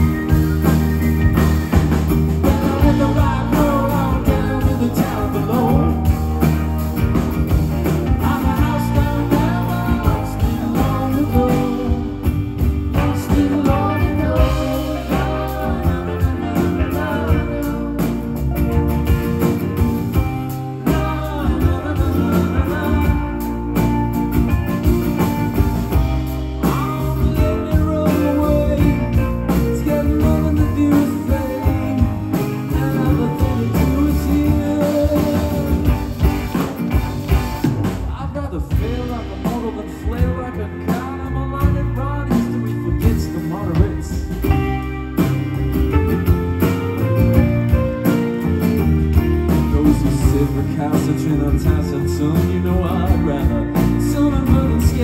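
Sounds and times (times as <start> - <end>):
person singing: 0.0 - 36.8, 38.0 - 44.9, 47.7 - 55.0
live rock band playing: 0.0 - 55.0.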